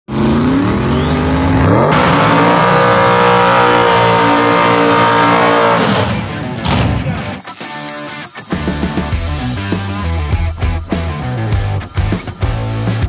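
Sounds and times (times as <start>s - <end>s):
race car engine revving: 0.1s - 7.4s.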